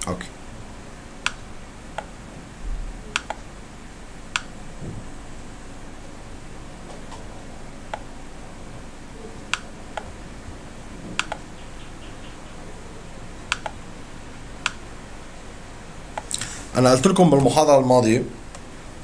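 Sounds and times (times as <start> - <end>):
faint microphone hiss: 0.0 - 19.0
computer mouse clicking: 3.1 - 3.4, 9.5 - 10.1, 11.1 - 11.6, 13.5 - 13.8.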